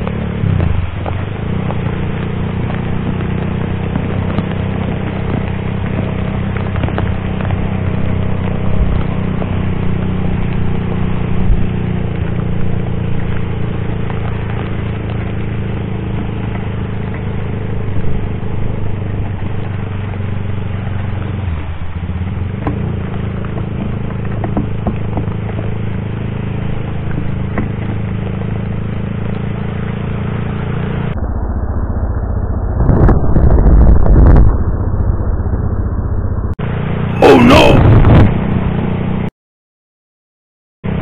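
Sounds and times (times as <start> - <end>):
rain and tyre spray hiss: 0.0 - 31.2
motorcycle engine running: 0.0 - 32.9.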